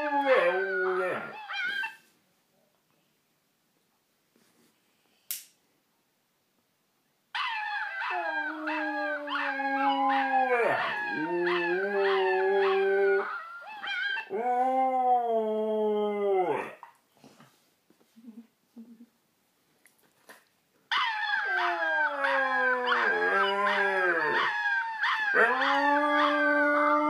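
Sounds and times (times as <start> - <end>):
husky howling: 7.4 - 16.8, 20.9 - 27.0.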